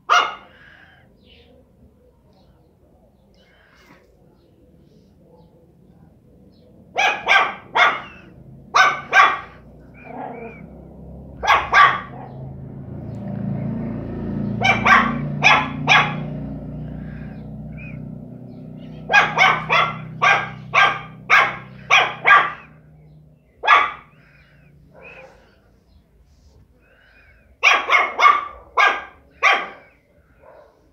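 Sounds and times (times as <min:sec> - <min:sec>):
puppy barking: 0:00.0 - 0:00.7, 0:06.8 - 0:13.8, 0:14.4 - 0:23.0, 0:23.6 - 0:25.6, 0:27.5 - 0:30.9
dog growling: 0:09.5 - 0:10.8.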